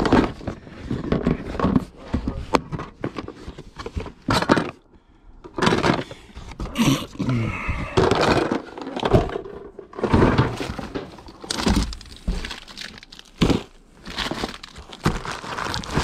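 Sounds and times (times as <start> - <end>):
objects knocking and clattering: 0.0 - 4.8, 5.4 - 16.0
cardboard handled: 10.0 - 16.0.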